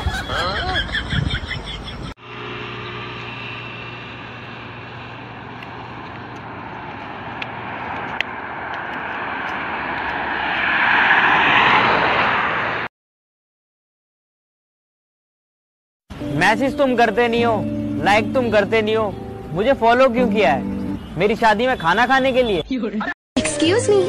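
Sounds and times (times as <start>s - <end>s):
rushing vehicle noise: 0.0s - 12.9s, 16.1s - 22.6s
music: 16.2s - 21.1s, 23.4s - 24.0s.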